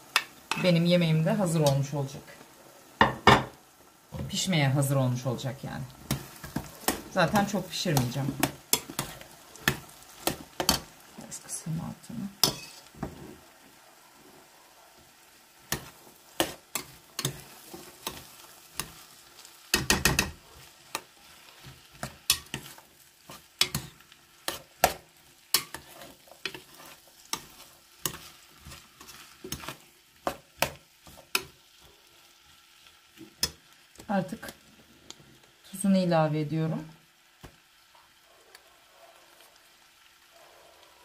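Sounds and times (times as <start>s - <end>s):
faint sizzle: 0.0s - 41.0s
spoon scraping and knocking a pot: 3.0s - 3.6s, 12.4s - 13.3s, 19.7s - 20.4s.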